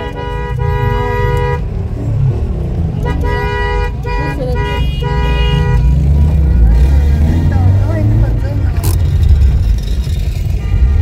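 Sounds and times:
car horns honking: 0.0s - 1.8s, 2.8s - 9.0s, 10.3s - 11.0s.

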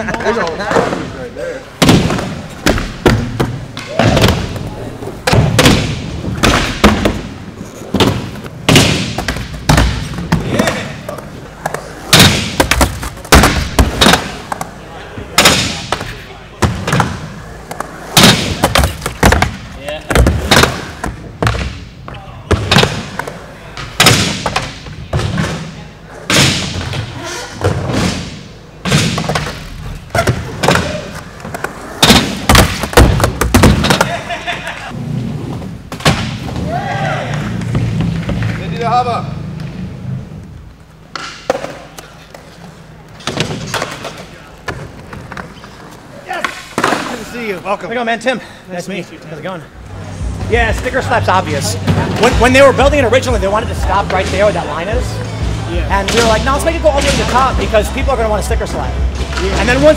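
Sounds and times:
skateboard wheels rolling: 0.0s - 21.6s, 26.0s - 47.9s
skateboards cracking on landing: 1.8s - 21.8s, 22.5s - 34.5s
skateboard wheels rumbling on ramp: 29.3s - 40.4s.

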